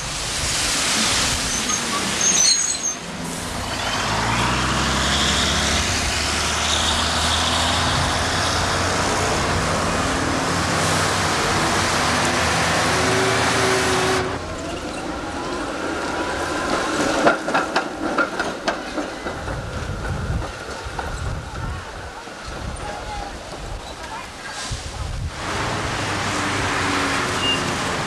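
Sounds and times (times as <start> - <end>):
tram whine: 1.0 - 21.2
vehicle engines passing: 3.2 - 17.1, 25.2 - 28.0
tram wheels clattering on rails: 7.5 - 28.0.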